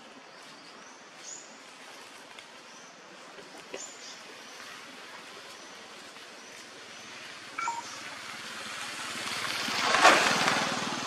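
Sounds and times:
steady forest hiss: 0:00.0 - 0:11.0
high whistled bird calls: 0:07.6 - 0:08.0.

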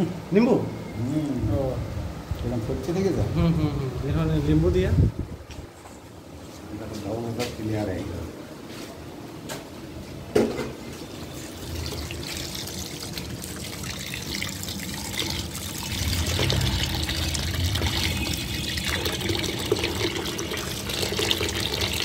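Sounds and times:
tap water pouring into steel bowl: 0:10.9 - 0:22.0.

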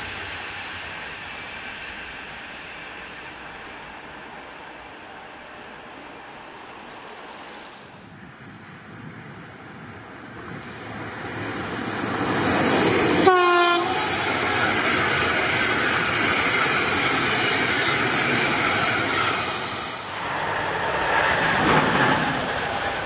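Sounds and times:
passenger train passing: 0:00.0 - 0:23.0
train horn blast: 0:13.2 - 0:14.2.

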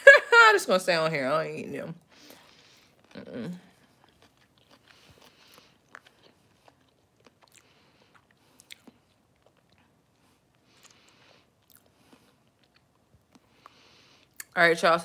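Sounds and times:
chewing and mouth sounds: 0:02.7 - 0:14.6.

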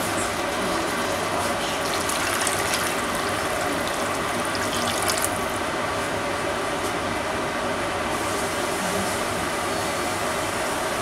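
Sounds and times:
water pouring: 0:01.8 - 0:05.6.

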